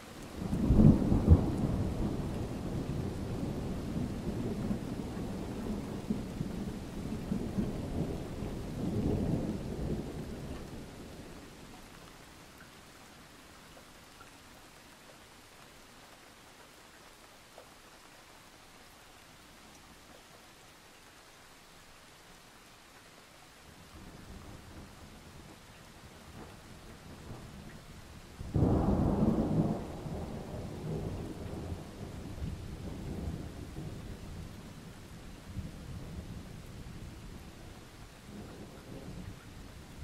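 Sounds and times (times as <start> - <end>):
faint steady hiss: 0.0 - 40.0
thunder rumble: 28.4 - 34.5.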